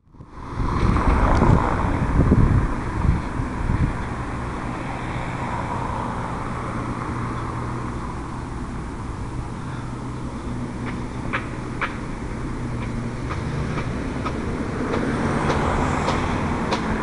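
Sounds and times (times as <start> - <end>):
wind gust on microphone: 0.0 - 7.3
road traffic hum: 0.0 - 17.0.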